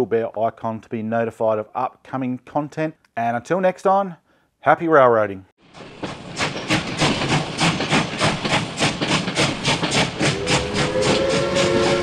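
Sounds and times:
steam locomotive chuffing: 5.6 - 12.0
steam whistle blowing: 10.2 - 12.0.

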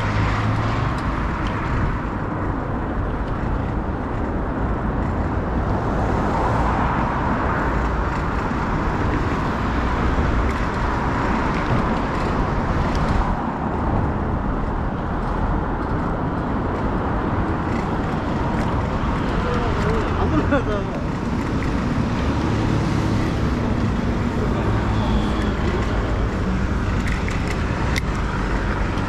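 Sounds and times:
city street traffic: 0.0 - 29.0.

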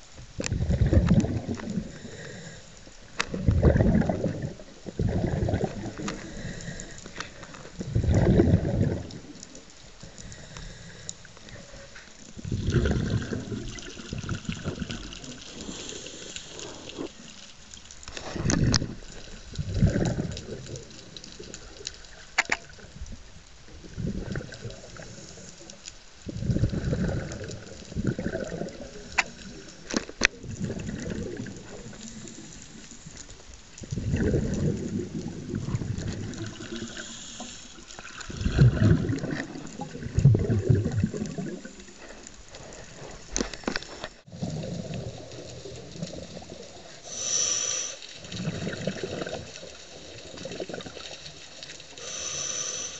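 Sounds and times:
underwater sloshing and bubbling: 0.0 - 52.9
steady hiss: 1.4 - 3.4, 8.6 - 22.8, 24.3 - 26.3, 28.8 - 38.3, 46.7 - 48.7, 51.0 - 52.9.

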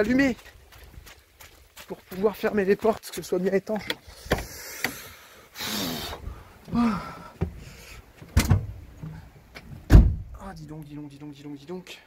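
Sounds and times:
man breathing loudly: 4.0 - 8.1
sharp thump: 9.9 - 10.3.

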